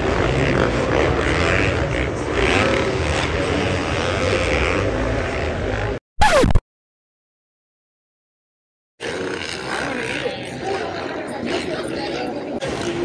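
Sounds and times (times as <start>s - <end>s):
dirt bike engines revving: 0.0s - 6.0s, 9.0s - 13.0s.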